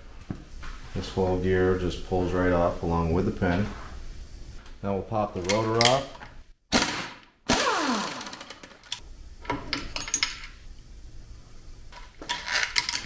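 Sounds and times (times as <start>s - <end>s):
air impact wrench bursts: 6.8s - 8.9s.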